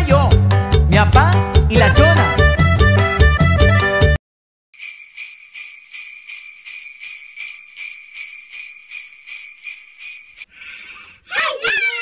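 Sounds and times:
sleigh bells shaking: 4.8s - 10.5s.

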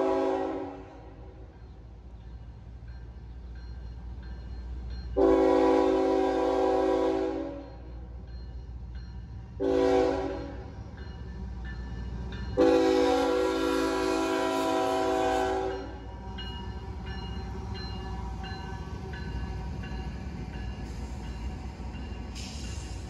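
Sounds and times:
locomotive air horn blast: 0.0s - 1.1s, 5.2s - 7.7s, 9.6s - 10.7s, 12.6s - 16.0s
locomotive engines rumbling: 0.0s - 23.0s
crossing warning bell dinging: 1.4s - 23.0s.

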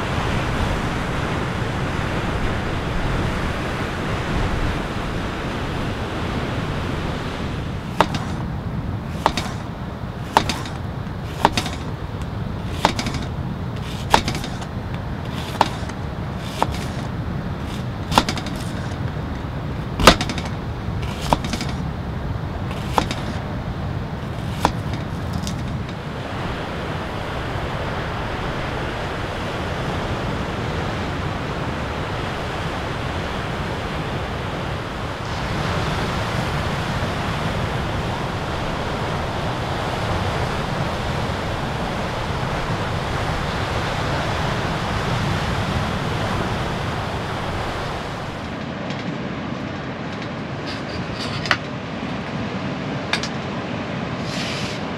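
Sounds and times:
waves breaking on rocks: 0.0s - 48.9s
surf and wind: 0.0s - 54.9s
knife slicing onion on board: 9.1s - 9.6s, 10.3s - 11.9s, 12.7s - 14.7s, 15.3s - 18.9s, 21.0s - 21.8s, 22.7s - 23.4s.

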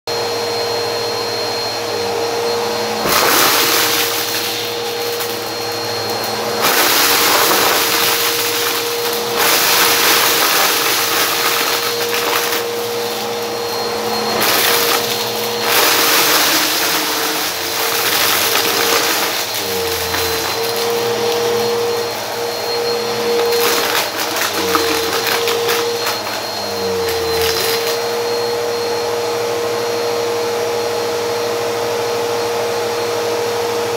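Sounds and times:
vacuum cleaner running on carpet: 0.1s - 33.9s
vacuum sucking up small debris: 2.4s - 28.2s.

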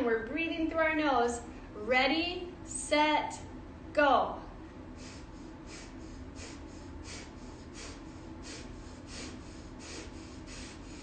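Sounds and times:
woman sniffing rapidly through nose: 5.0s - 11.0s.

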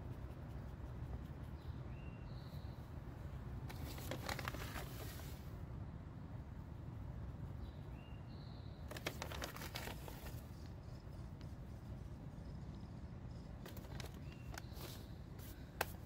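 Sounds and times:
bird chirping: 0.0s - 2.9s, 7.5s - 9.0s, 10.3s - 15.4s.

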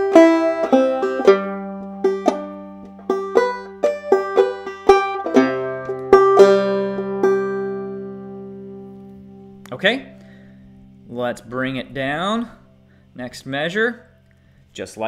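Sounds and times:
banjo playing: 0.0s - 10.4s.

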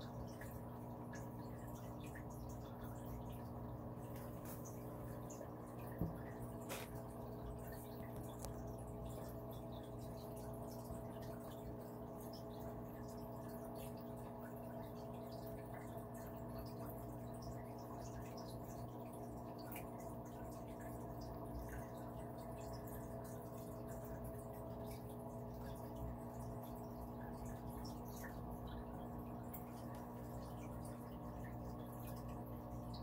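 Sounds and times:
aquarium pump humming: 0.0s - 33.0s
water trickling and dripping: 0.0s - 33.0s.

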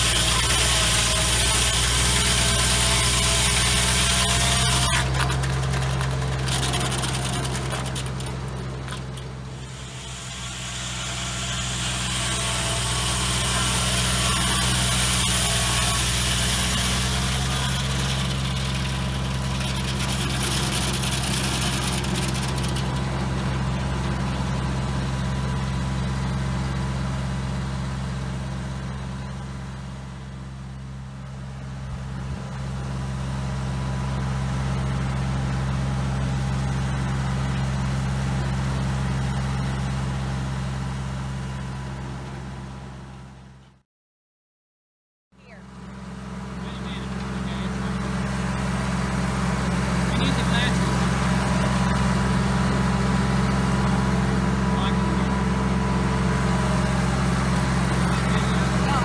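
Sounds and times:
saw blade cutting wood: 0.0s - 25.6s, 46.7s - 59.0s
tractor engine running: 0.0s - 43.6s, 45.4s - 59.0s.

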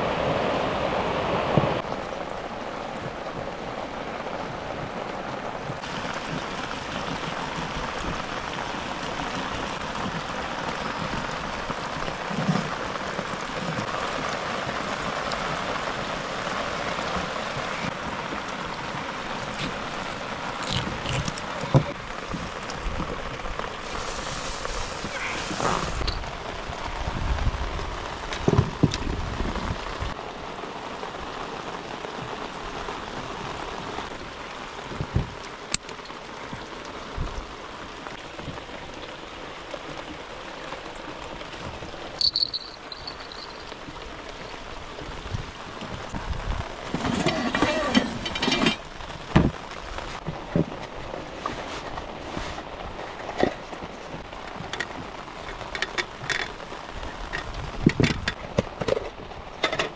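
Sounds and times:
water hiss: 23.6s - 26.3s.

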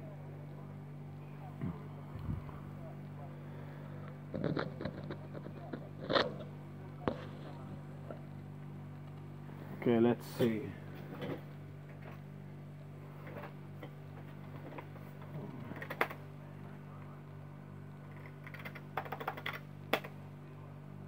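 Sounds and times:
computer humming: 0.0s - 21.0s
rapid clicking: 18.2s - 20.2s.

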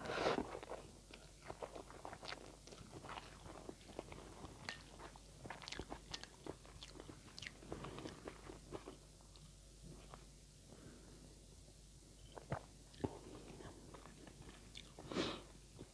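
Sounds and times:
chewing noodles: 0.6s - 10.2s.

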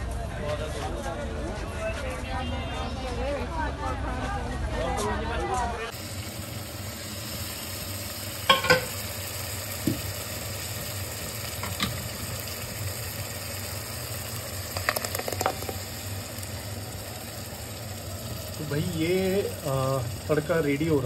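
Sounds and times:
spices sizzling in hot oil: 5.9s - 21.0s
metal spoon clanging on pan: 8.5s - 9.0s.

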